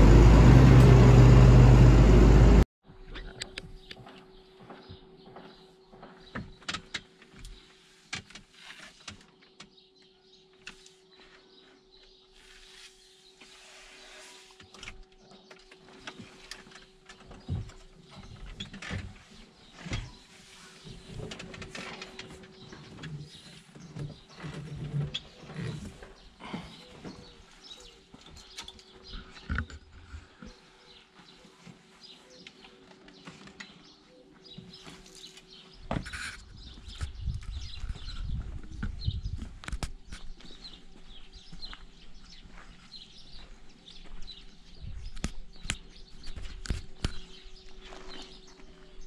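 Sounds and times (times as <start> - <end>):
birds chirping: 0.0 - 2.6, 14.3 - 49.0.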